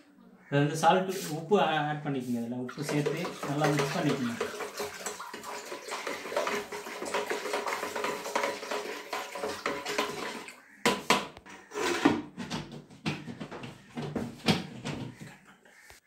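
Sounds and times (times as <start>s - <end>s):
water sloshing in plastic bucket: 2.7s - 10.7s, 11.9s - 15.6s.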